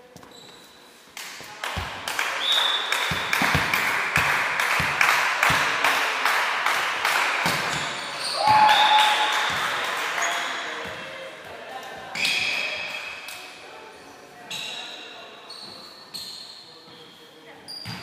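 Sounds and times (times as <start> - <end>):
spectators cheering and shouting: 8.2 - 9.8.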